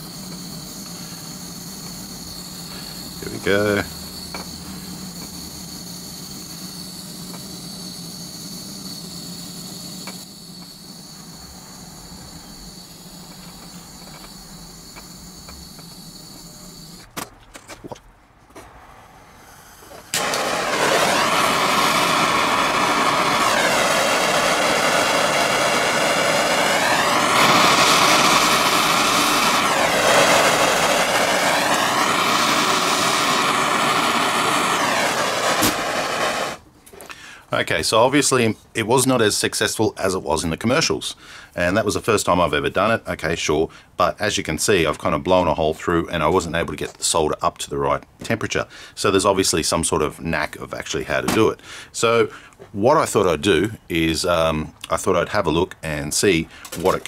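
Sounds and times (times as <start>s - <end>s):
pencil torch hissing: 0.0s - 17.1s, 18.8s - 38.3s
handheld torch rushing hiss: 0.0s - 17.2s, 18.6s - 38.3s, 56.1s - 57.0s.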